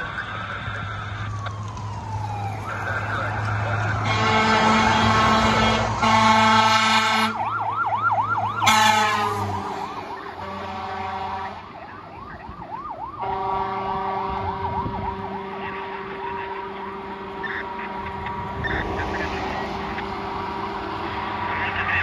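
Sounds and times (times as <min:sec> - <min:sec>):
electronic siren yelping: 0:00.0 - 0:22.0
truck diesel engine: 0:00.0 - 0:22.0
air horn blasts: 0:04.0 - 0:07.5, 0:08.6 - 0:11.6, 0:13.2 - 0:18.3.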